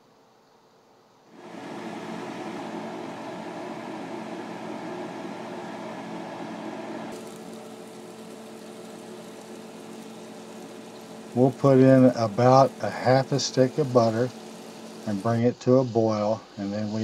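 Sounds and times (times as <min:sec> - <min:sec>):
water boiling in a pot: 0:01.3 - 0:17.0
sausage sizzling in a frying pan: 0:06.7 - 0:17.0.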